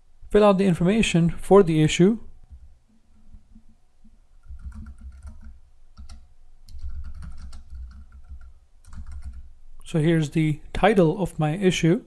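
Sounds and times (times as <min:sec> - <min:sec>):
typing on computer keyboard: 0:04.4 - 0:09.5.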